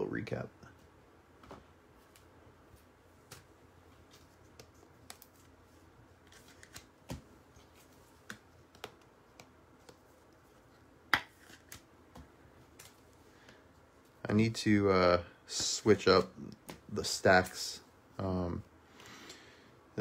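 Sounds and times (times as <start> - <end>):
cards clicking and tapping on table: 8.2 - 10.0.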